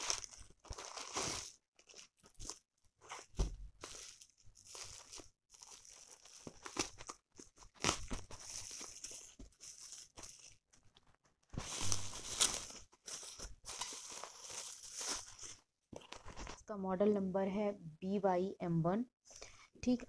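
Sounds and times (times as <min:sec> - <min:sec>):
scissors cutting bubble wrap: 0:00.0 - 0:10.6
bubble wrap crinkling: 0:00.0 - 0:16.6.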